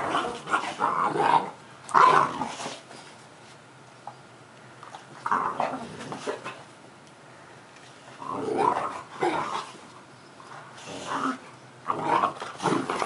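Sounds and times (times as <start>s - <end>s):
dogs growling and barking: 0.0s - 2.9s, 5.1s - 6.7s, 8.1s - 9.9s, 10.6s - 13.0s.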